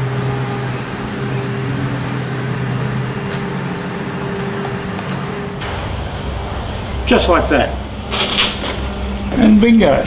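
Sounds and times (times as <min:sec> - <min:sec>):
electric motor humming: 0:00.0 - 0:07.1.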